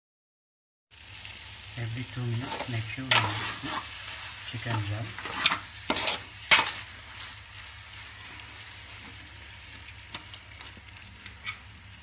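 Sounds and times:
chicken sizzling in a pot: 0.9s - 12.0s
metal ladle scraping a pot: 2.4s - 4.0s, 4.7s - 6.9s.

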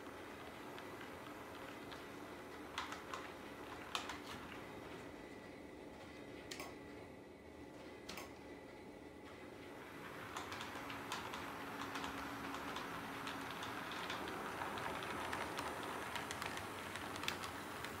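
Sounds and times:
model train rumbling on track: 9.8s - 18.0s
wheels clicking on rail joints: 10.2s - 18.0s.

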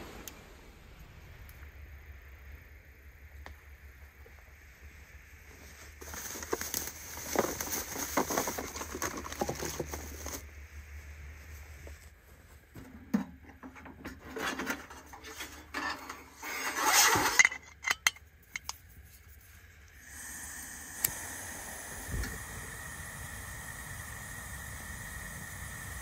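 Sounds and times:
steady hiss: 0.0s - 26.0s
metal parts clinking and scraping: 13.7s - 18.8s.

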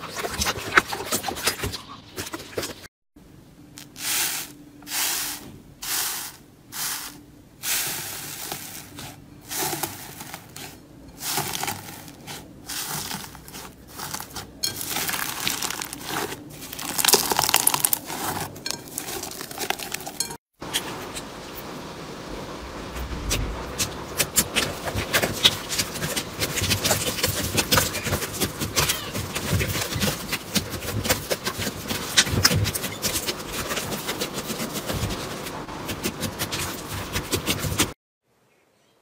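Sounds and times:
crunchy slime squeezed by hand: 11.3s - 20.1s.

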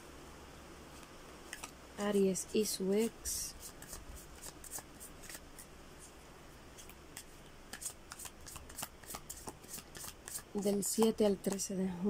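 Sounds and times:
cards sliding and flicking: 0.9s - 1.8s, 3.6s - 6.2s, 6.8s - 11.6s.

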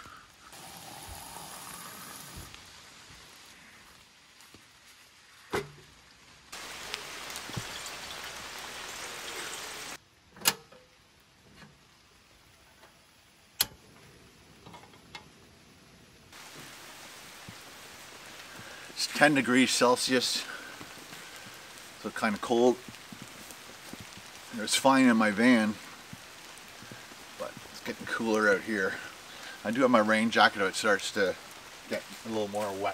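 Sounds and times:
water pouring into kettle: 0.5s - 2.5s.

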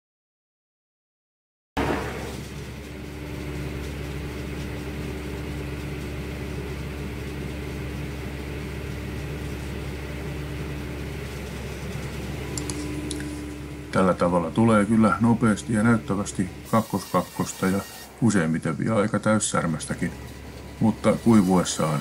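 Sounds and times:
circular sawmill humming: 1.8s - 22.0s.

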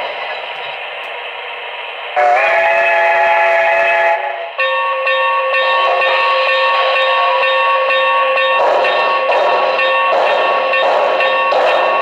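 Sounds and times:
model train steam chuffs: 0.0s - 4.6s, 8.5s - 12.0s.

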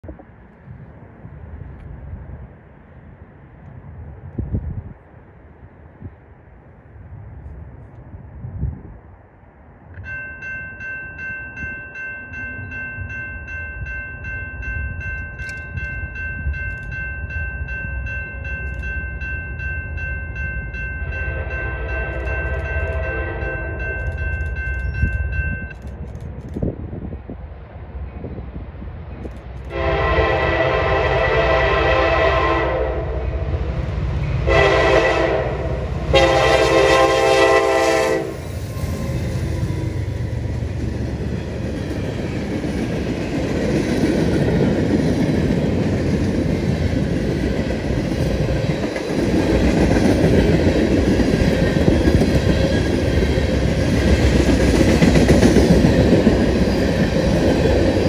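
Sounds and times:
train air horn blasts: 21.2s - 23.9s, 29.7s - 33.6s, 34.4s - 39.0s
freight cars rolling on rails: 33.2s - 58.0s.

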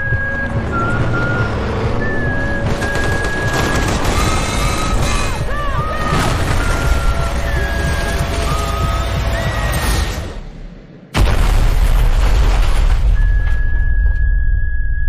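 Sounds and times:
rapid gunfire: 2.7s - 5.4s
explosion booms: 11.1s - 13.5s.

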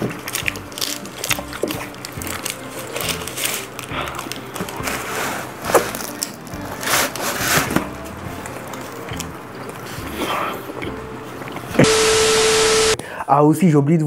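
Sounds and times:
crunchy crackling bites: 0.0s - 4.9s
food being chewed: 0.0s - 6.9s, 7.6s - 11.8s.

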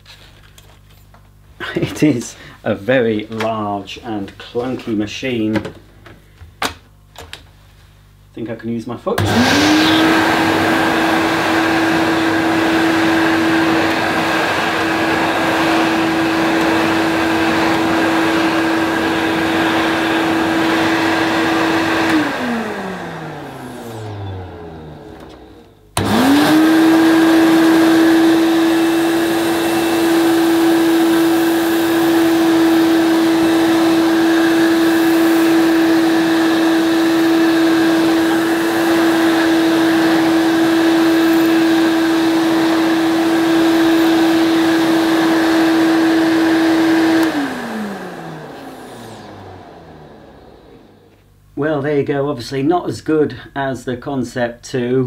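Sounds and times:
vacuum cleaner motor whining: 9.1s - 51.4s.

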